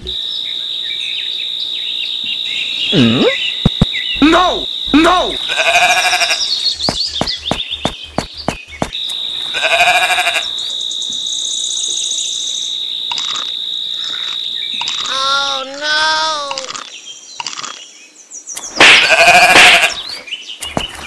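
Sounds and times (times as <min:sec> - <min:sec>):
steady high-pitched tone: 0:00.0 - 0:05.7
sheep bleating: 0:04.5 - 0:06.4, 0:09.5 - 0:10.5, 0:18.9 - 0:20.0.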